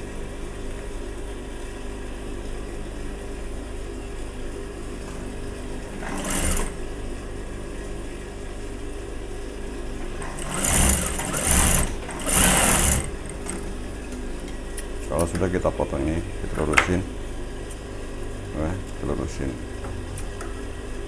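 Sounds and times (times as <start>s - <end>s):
sewing machine humming: 4.8s - 7.2s, 10.0s - 14.5s
sewing machine stitching: 5.0s - 6.9s, 10.0s - 13.9s.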